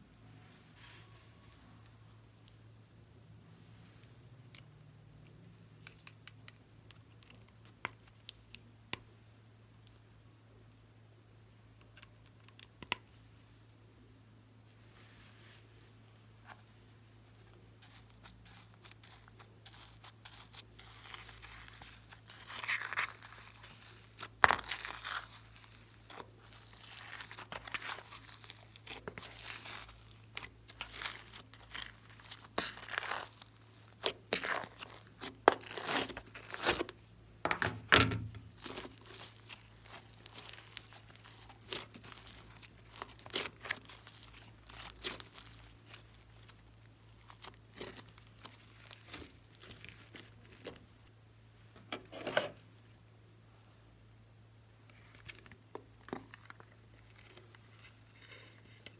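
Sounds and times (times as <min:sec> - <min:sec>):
sticky slime crackling and popping: 0:17.8 - 0:36.9, 0:38.6 - 0:50.8.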